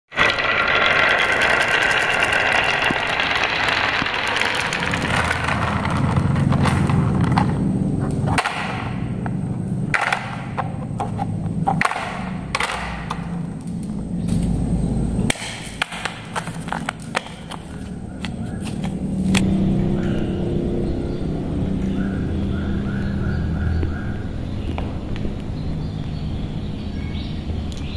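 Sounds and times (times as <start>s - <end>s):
balls clattering down wooden run: 0.1s - 14.1s, 15.3s - 19.4s
low steady rumble: 0.2s - 22.7s
knocks and clicks of toys handled: 1.2s - 13.3s, 15.4s - 19.4s.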